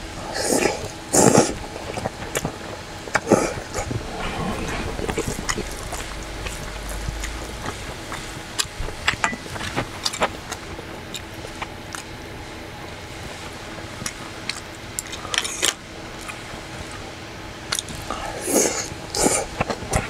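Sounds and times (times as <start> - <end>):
person slurping noodles: 0.3 - 1.6.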